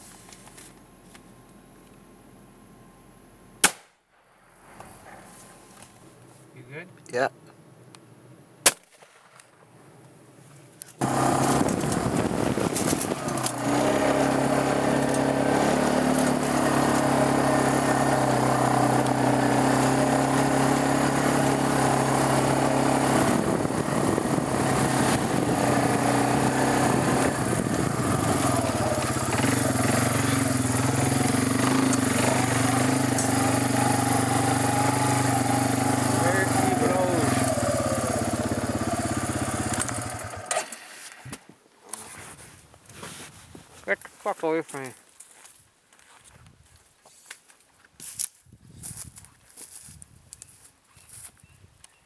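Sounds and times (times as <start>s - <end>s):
gunshot: 3.6s - 4.0s, 8.6s - 9.4s
small vehicle engine running: 11.0s - 41.2s.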